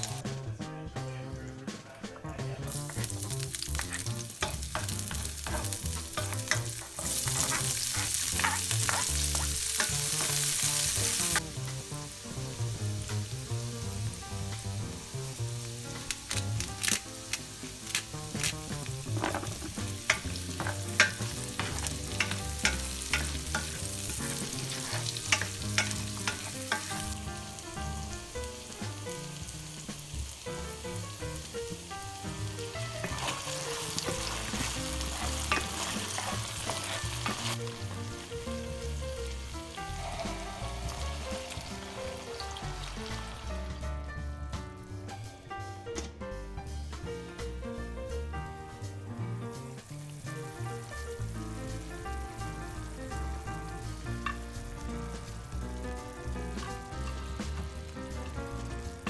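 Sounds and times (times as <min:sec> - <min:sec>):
vegetables sizzling in oil: 0:00.0 - 0:00.2, 0:02.7 - 0:43.8, 0:48.8 - 0:59.0
spatula scraping a pan: 0:03.8 - 0:11.2, 0:19.1 - 0:27.2, 0:33.0 - 0:37.6.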